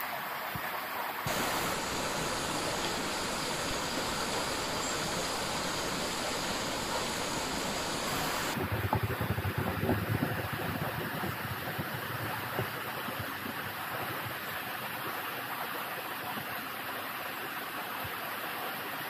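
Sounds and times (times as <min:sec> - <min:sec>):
rushing hiss of water: 0:00.0 - 0:08.8.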